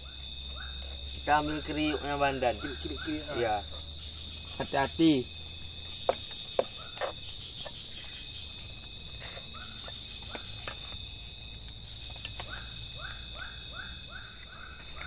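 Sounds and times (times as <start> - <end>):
frog calling: 0.0 - 15.0
insects ringing: 0.0 - 15.0.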